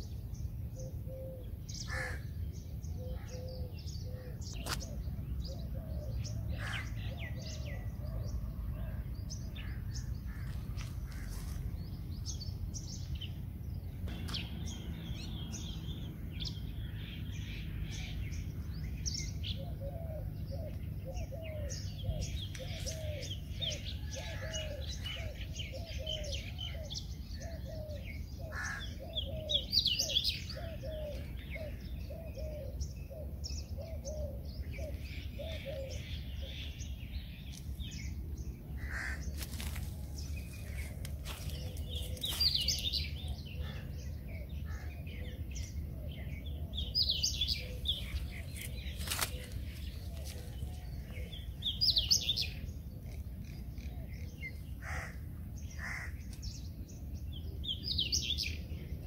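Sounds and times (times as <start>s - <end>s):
small birds chirping: 0.0s - 59.0s
dove cooing: 1.0s - 2.2s, 3.0s - 9.0s, 19.5s - 36.8s, 40.6s - 52.4s.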